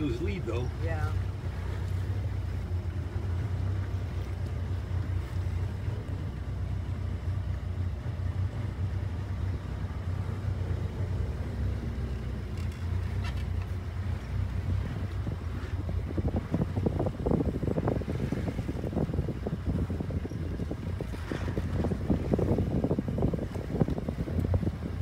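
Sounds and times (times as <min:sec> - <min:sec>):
motorboat engine humming: 0:00.0 - 0:25.0
wind noise on microphone: 0:07.9 - 0:25.0.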